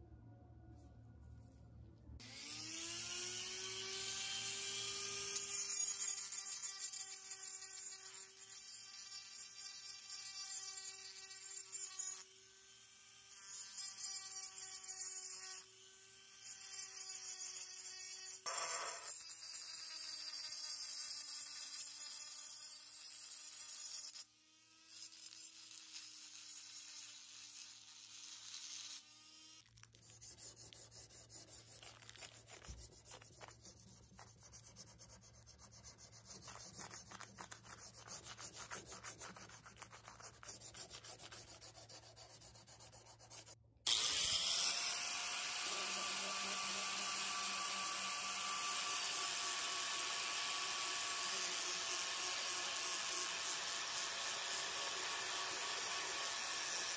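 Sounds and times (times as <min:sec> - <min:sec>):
power tool whining: 0:02.2 - 0:07.6, 0:43.9 - 0:56.9
hand rubbing and sanding: 0:29.7 - 0:43.6.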